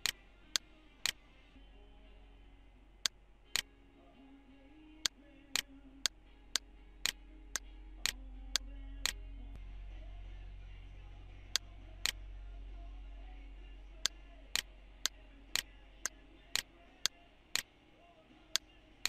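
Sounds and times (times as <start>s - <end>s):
low hum: 0.0s - 19.0s.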